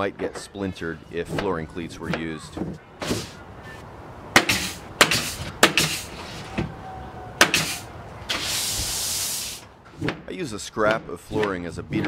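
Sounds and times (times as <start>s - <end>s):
pneumatic stapler firing: 4.4s - 6.1s, 7.4s - 8.8s
air hissing: 4.4s - 6.6s, 7.4s - 9.8s.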